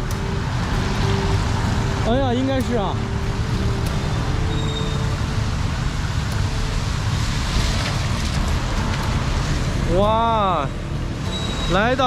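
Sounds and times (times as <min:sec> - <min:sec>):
cars passing on wet street: 0:00.0 - 0:12.0
engines rumbling: 0:00.0 - 0:12.0.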